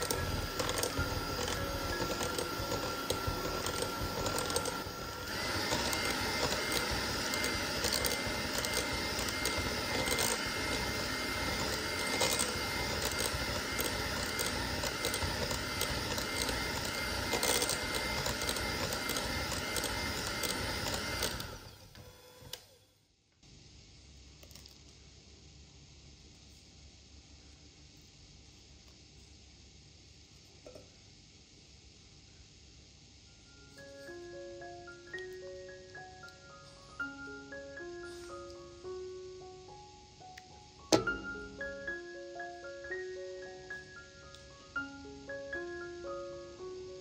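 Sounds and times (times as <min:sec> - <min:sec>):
electric hand mixer whining: 0:00.0 - 0:22.9.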